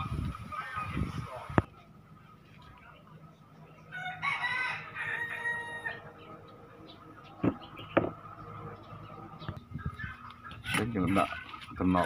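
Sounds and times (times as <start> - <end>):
rooster crowing: 3.9 - 6.1
sharp knocks: 7.4 - 8.2.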